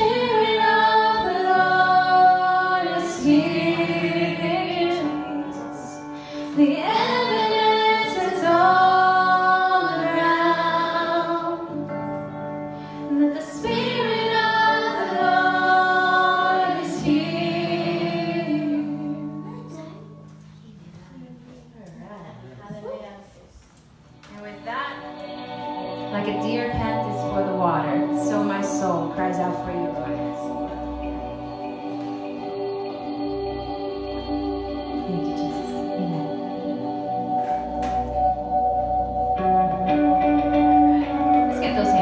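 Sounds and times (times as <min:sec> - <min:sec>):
women singing: 0:00.0 - 0:12.2, 0:13.1 - 0:19.8, 0:24.9 - 0:37.7.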